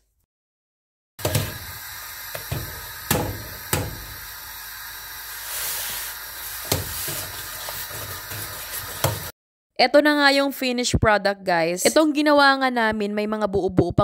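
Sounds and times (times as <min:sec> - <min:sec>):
steam hissing off pot: 0:01.2 - 0:09.3.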